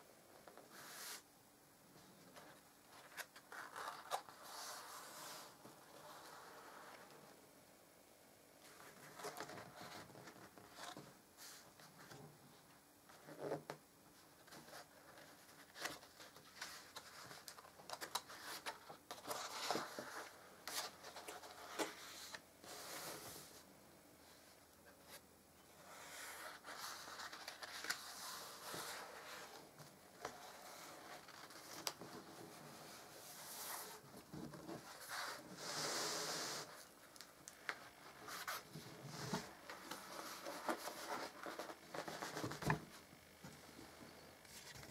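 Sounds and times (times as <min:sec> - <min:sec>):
album pages turning: 0:02.4 - 0:05.4, 0:14.4 - 0:23.0, 0:25.9 - 0:35.4, 0:37.1 - 0:43.0, 0:44.4 - 0:44.9.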